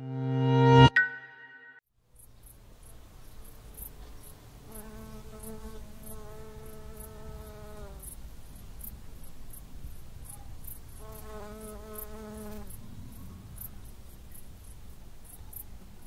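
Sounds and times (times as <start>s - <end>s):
insect buzzing: 3.8s - 8.2s, 10.7s - 12.8s.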